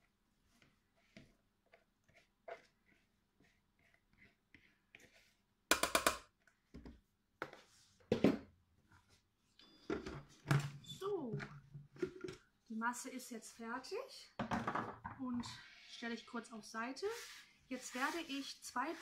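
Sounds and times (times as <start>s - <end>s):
spatula scraping a bowl: 1.0s - 5.3s, 17.0s - 19.0s.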